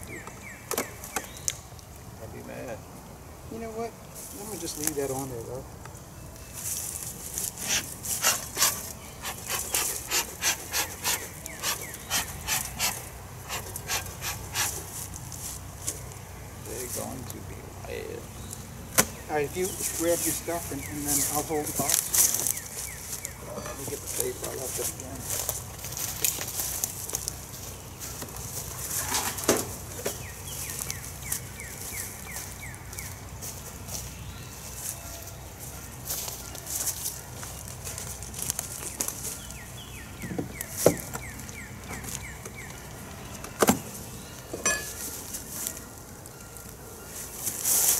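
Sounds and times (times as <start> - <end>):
bird chirping: 0.0 - 1.7, 4.4 - 14.9, 15.9 - 47.6
bellows puffing air: 7.6 - 15.0.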